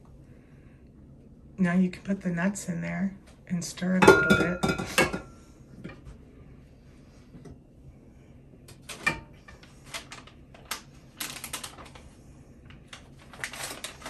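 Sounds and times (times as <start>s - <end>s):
plastic packet crinkling: 9.8s - 12.1s, 12.9s - 14.0s.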